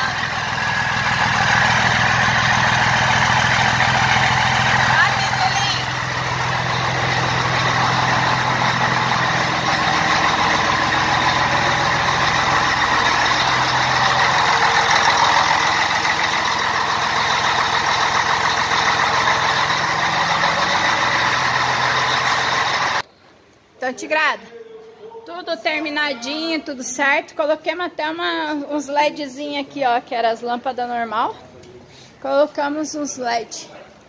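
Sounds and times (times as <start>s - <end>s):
diesel engine idling: 0.0s - 23.0s.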